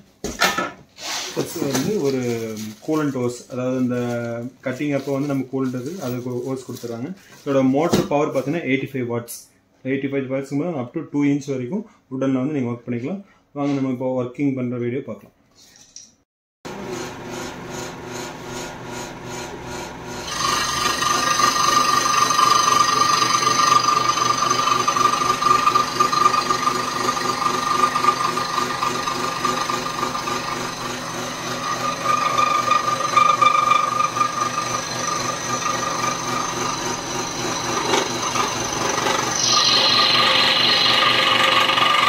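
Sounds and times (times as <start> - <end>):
scroll saw cutting wood: 16.7 - 42.0.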